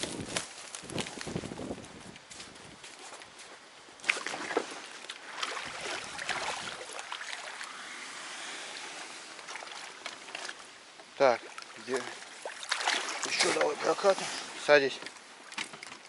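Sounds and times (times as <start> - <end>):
water sloshing against hull: 4.1 - 16.0.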